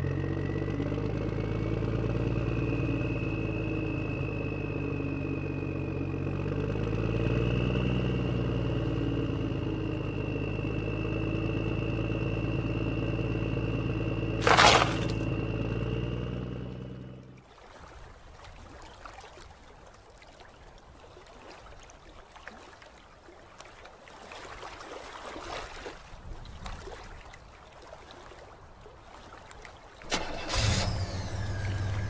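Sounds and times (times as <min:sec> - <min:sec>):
rock crashing into trolley: 0:14.4 - 0:15.2
water splashing and trickling: 0:14.4 - 0:15.3, 0:17.4 - 0:30.6.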